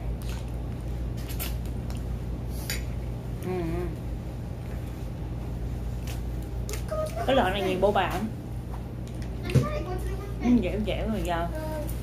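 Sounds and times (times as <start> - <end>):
steady low hum: 0.0 - 12.0
person humming mm: 3.4 - 4.1.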